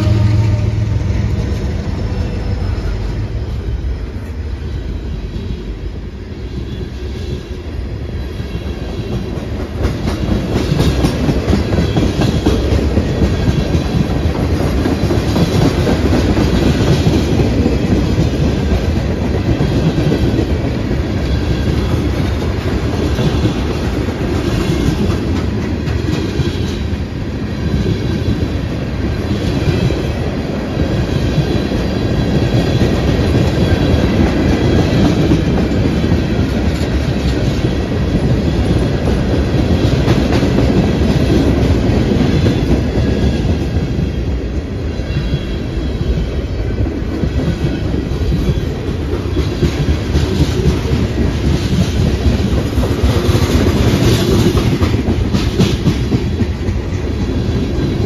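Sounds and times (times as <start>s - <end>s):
locomotive engine hum: 0.0s - 8.3s
train cars rumbling past: 0.0s - 58.0s.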